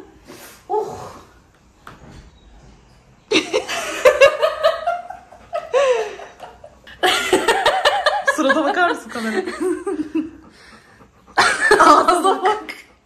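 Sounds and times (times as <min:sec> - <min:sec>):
woman laughing: 0:03.3 - 0:10.5, 0:11.4 - 0:12.8.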